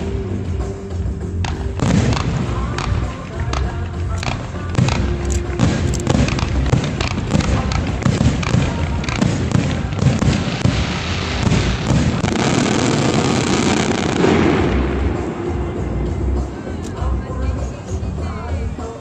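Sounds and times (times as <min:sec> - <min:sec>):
fireworks bangs: 0:01.5 - 0:16.6.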